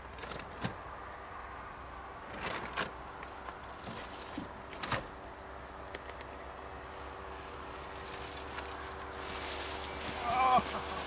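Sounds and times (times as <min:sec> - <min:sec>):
distant paramotor engine drone: 0:03.0 - 0:11.0.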